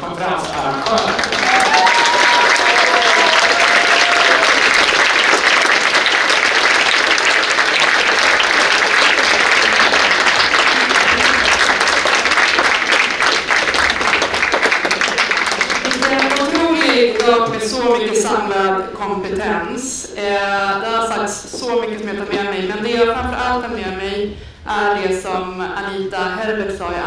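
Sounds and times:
audience applauding: 0.0 - 17.8.

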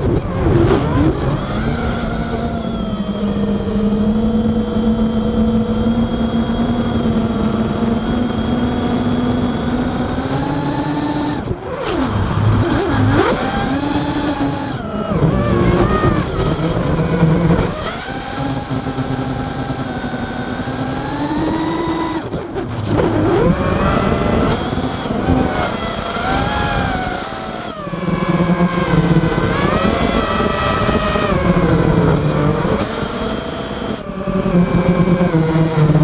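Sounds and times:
drone motors whining: 0.0 - 36.0
high whistle: 1.0 - 11.6, 12.5 - 14.9, 15.9 - 17.0, 17.6 - 22.6, 24.2 - 27.9, 32.1 - 34.2.

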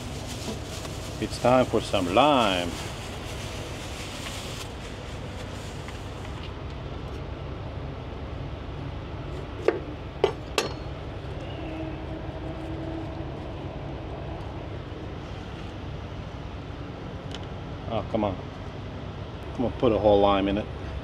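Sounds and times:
low engine hum: 0.0 - 19.9.

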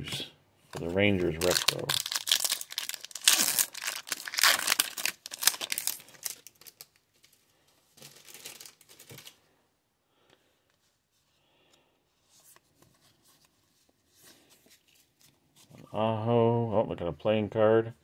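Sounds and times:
foil wrapper tearing and crinkling: 1.3 - 7.0, 8.0 - 9.4
faint rustle of handling: 10.7 - 16.0.

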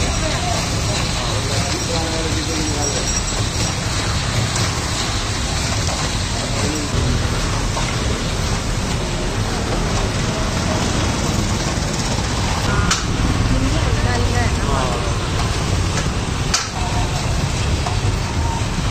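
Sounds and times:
ice cream roller drum motor hum: 0.0 - 18.9.

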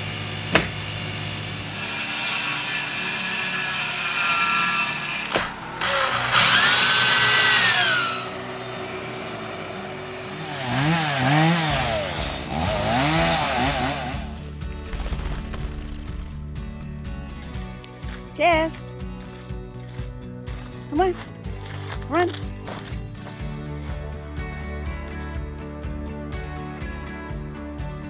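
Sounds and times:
electric drill boring into wood: 0.5 - 14.4
chainsaw revving: 3.9 - 16.6.

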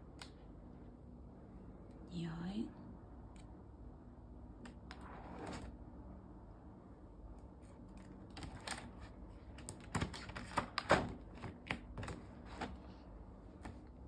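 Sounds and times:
book pages flipping against wire: 7.6 - 14.0.

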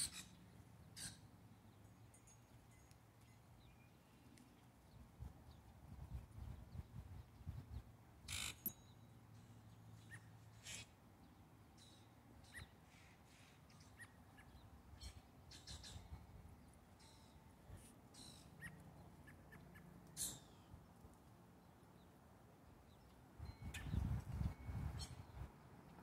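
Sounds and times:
birds calling: 0.0 - 2.8, 8.3 - 11.0, 18.1 - 20.8.

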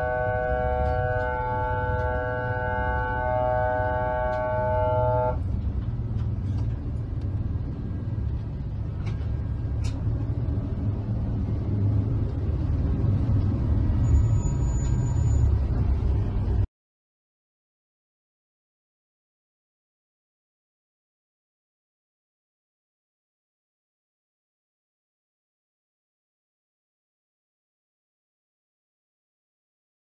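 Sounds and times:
multi-tone horn blast: 0.0 - 5.4
boat engines rumbling: 0.0 - 16.6.

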